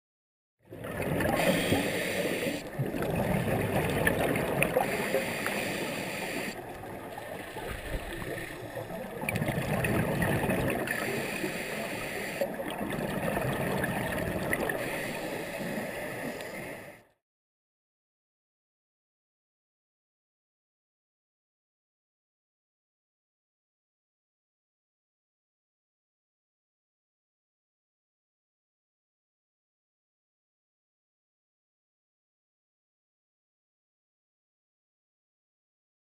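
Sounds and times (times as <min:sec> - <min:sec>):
gurgling exhaust bubbles: 0:00.8 - 0:01.5, 0:02.7 - 0:05.0, 0:06.7 - 0:11.2, 0:12.6 - 0:14.8
diver breathing through regulator: 0:01.1 - 0:02.9, 0:04.6 - 0:09.2, 0:10.7 - 0:12.8, 0:14.5 - 0:17.2.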